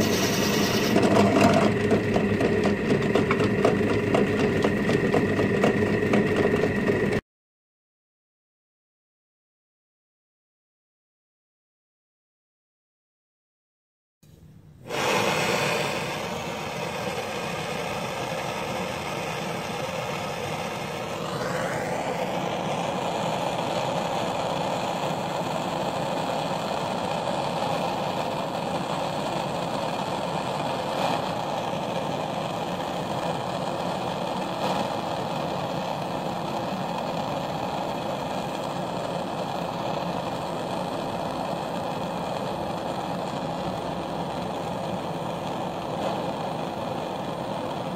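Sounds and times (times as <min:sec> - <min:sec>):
rising whistle: 0:00.0 - 0:01.0
gas torch hissing: 0:00.0 - 0:07.1, 0:14.8 - 0:47.9.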